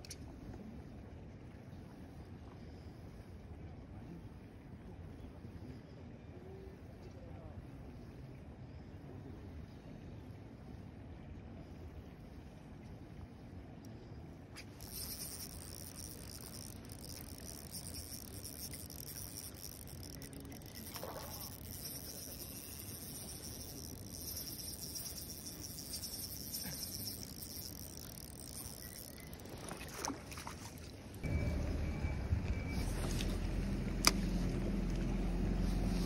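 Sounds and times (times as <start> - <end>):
fishing reel whirring: 14.6 - 30.9
fish splashing in water: 14.6 - 31.0.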